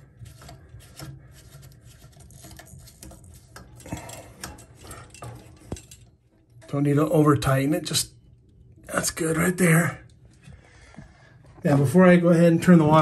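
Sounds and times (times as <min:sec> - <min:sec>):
nut scraping and clicking on threads: 0:00.1 - 0:06.2.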